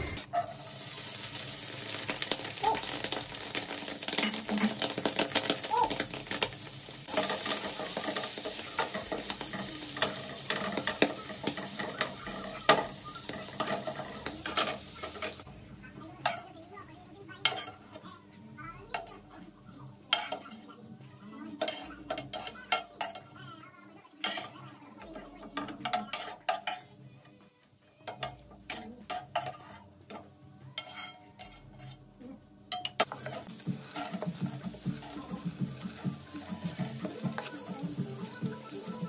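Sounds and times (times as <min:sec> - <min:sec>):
vegetables sizzling in oil: 0:00.0 - 0:26.8, 0:33.0 - 0:39.0
metal spoon scraping frying pan: 0:00.2 - 0:15.5, 0:21.5 - 0:23.4, 0:24.2 - 0:26.9, 0:28.1 - 0:30.2, 0:30.8 - 0:32.1, 0:32.8 - 0:38.1.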